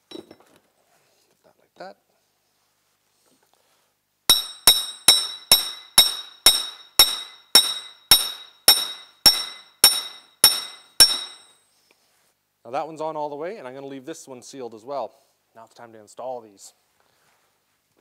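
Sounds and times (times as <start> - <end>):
hammer ringing on metal: 4.3 - 11.6.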